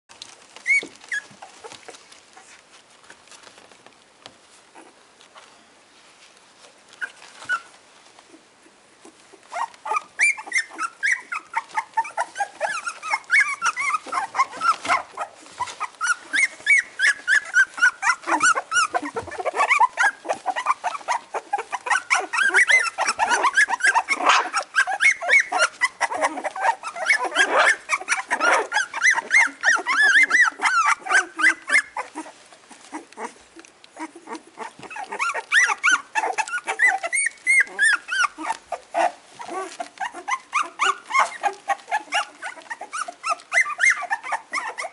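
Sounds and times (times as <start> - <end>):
puppies whimpering and squealing: 0.2 - 3.6, 6.9 - 8.4, 9.0 - 44.9.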